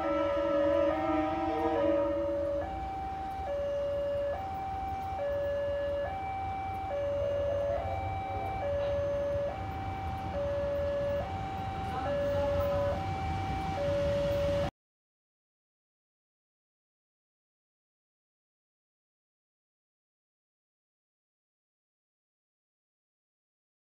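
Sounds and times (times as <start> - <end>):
two-tone crossing alarm: 0.0 - 14.7.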